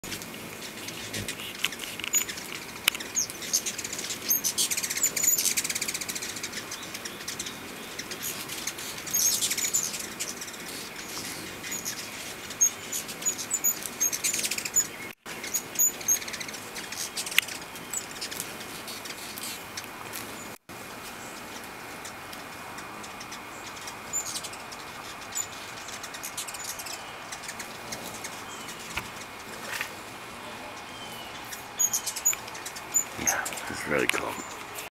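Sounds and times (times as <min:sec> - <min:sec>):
hummingbird wings humming: 0:00.0 - 0:34.9
high bird chirps: 0:30.7 - 0:34.6.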